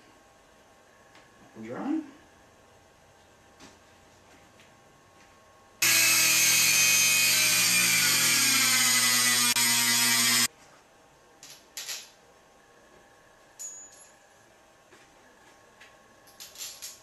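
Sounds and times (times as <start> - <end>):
rotary tool cutting metal: 5.8 - 10.5.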